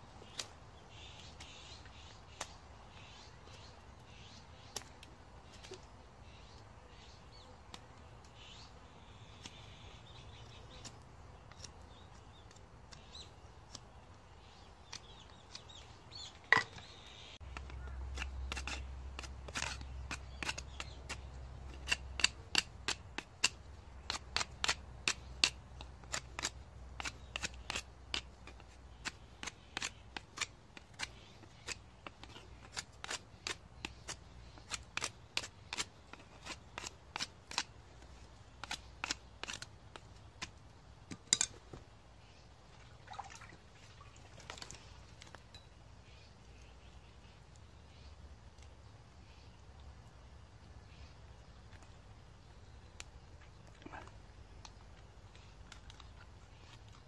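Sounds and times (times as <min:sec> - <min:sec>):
knife whittling wood: 0:17.8 - 0:37.7.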